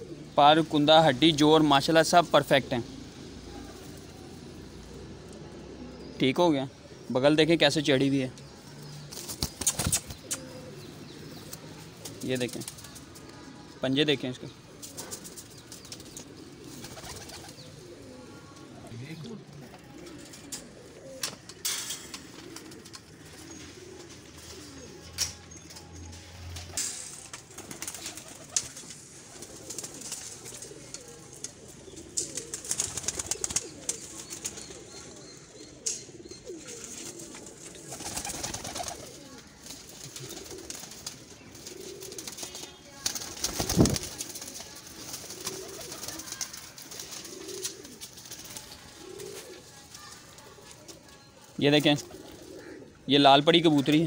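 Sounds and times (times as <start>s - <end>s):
pigeons cooing: 0.0s - 54.0s
wings flapping: 9.1s - 10.6s, 11.4s - 13.3s, 14.8s - 17.7s, 19.7s - 24.9s, 26.5s - 34.8s, 36.7s - 50.7s.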